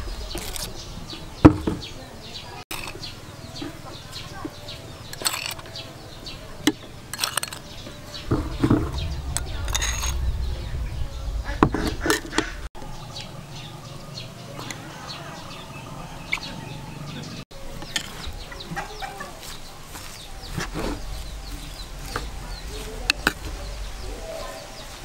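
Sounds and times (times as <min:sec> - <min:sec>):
chickens clucking: 0:00.0 - 0:25.0
metal spoon scraping plastic bowl: 0:05.1 - 0:05.8.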